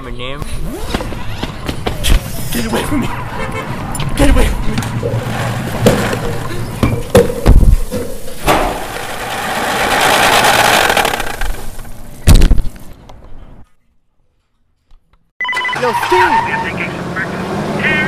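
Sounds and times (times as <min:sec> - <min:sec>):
knocks and heavy low thumps: 0:06.8 - 0:08.8
rushing engine-like noise: 0:08.7 - 0:11.6, 0:15.8 - 0:18.0.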